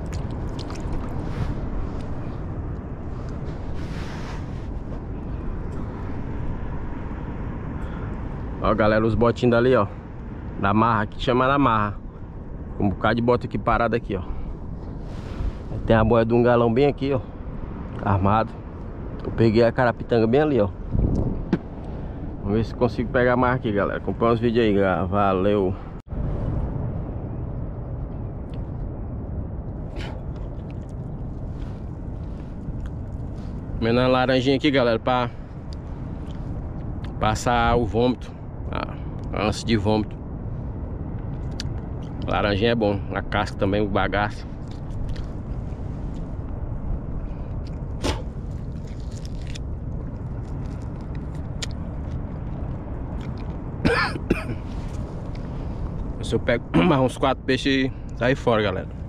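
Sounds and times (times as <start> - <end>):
slurp: 0.0 - 1.5
man chewing and sucking orange: 0.0 - 2.2, 30.1 - 31.2, 44.6 - 45.4, 47.5 - 53.6
wind and sea rumble: 0.0 - 59.0.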